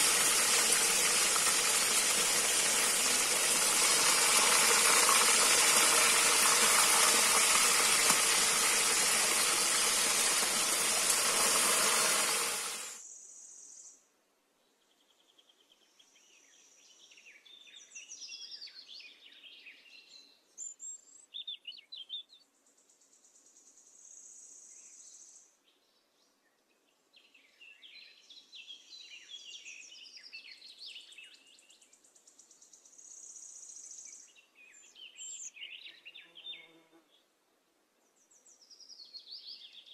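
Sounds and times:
fish sizzling in hot oil: 0:00.0 - 0:13.0.

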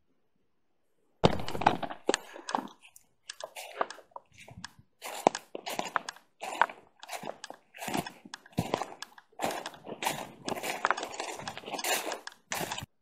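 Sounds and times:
footsteps crunching dry leaves: 0:03.4 - 0:12.9.

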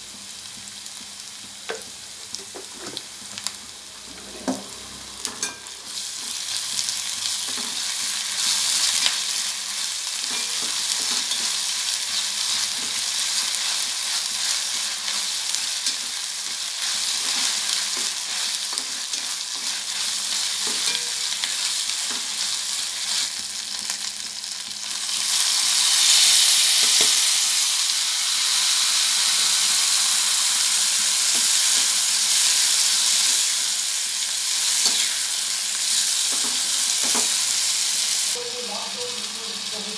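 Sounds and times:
vegetables sizzling in hot oil: 0:00.0 - 0:39.9
steel ladle scraping and tapping pan: 0:04.1 - 0:05.8.

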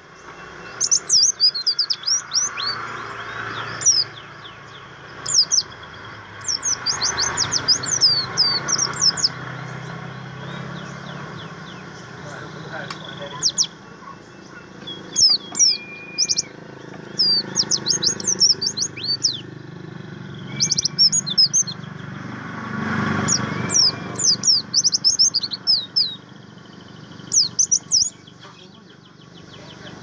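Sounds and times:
bird chirping: 0:00.0 - 0:30.0
bird whistle notes: 0:13.2 - 0:16.5, 0:20.4 - 0:21.8, 0:23.2 - 0:26.2.

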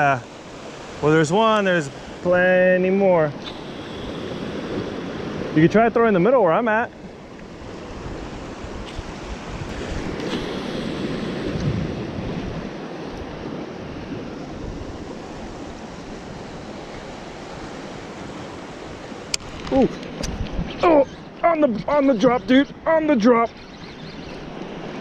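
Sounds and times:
surf washing around rocks: 0:00.0 - 0:25.0
wind buffeting microphone: 0:07.0 - 0:25.0.

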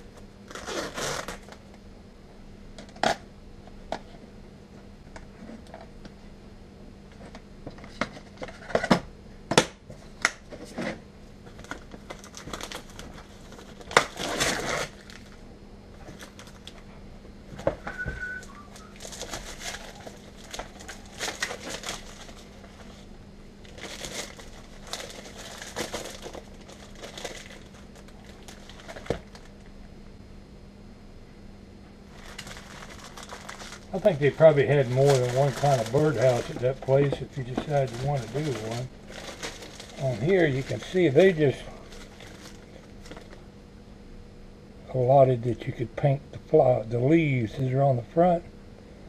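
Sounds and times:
plastic packaging crinkling: 0:11.5 - 0:15.4, 0:16.0 - 0:16.8, 0:17.9 - 0:29.7, 0:32.1 - 0:43.4.

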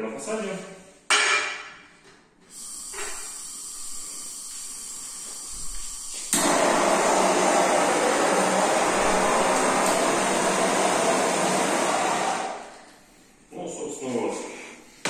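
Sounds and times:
gas torch hissing: 0:02.5 - 0:12.8.

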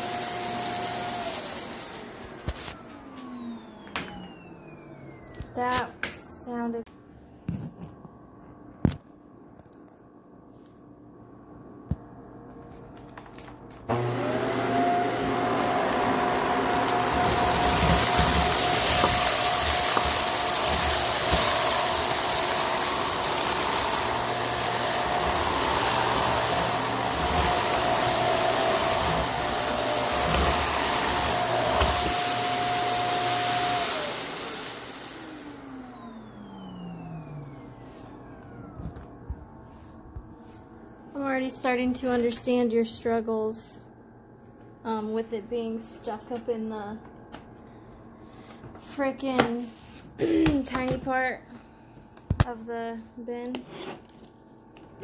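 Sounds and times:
vacuum cleaner motor whining: 0:00.0 - 0:05.8, 0:13.9 - 0:40.0.

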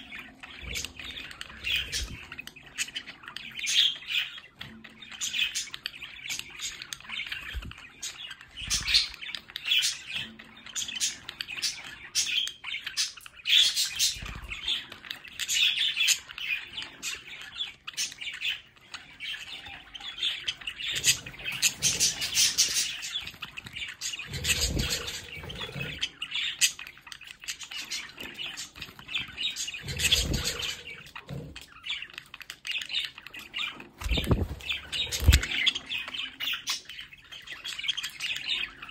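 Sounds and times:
budgerigars chattering and chirping: 0:00.0 - 0:38.9.

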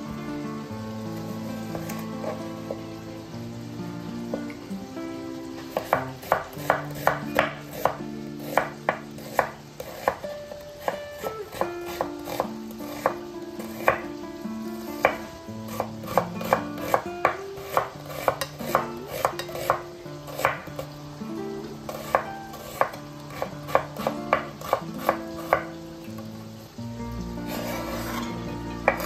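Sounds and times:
knife chopping on cutting board: 0:05.7 - 0:10.2, 0:10.8 - 0:14.1, 0:15.0 - 0:20.9, 0:21.9 - 0:25.7, 0:27.5 - 0:28.2.

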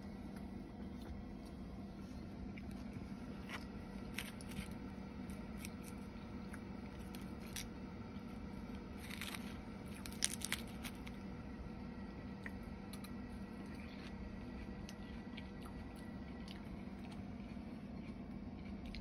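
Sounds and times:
lettuce crunching: 0:02.6 - 0:11.3.

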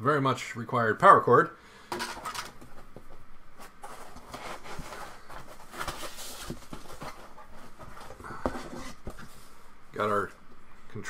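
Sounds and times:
foam packing rustling and scraping: 0:03.6 - 0:09.5.

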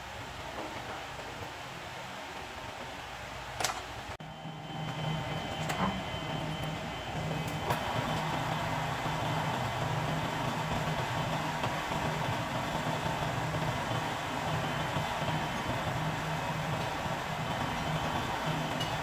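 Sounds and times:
drill press humming: 0:04.2 - 0:19.0.

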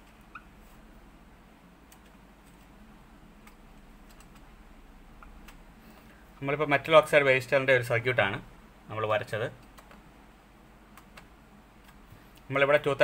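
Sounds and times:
marker squeak: 0:00.2 - 0:00.5.

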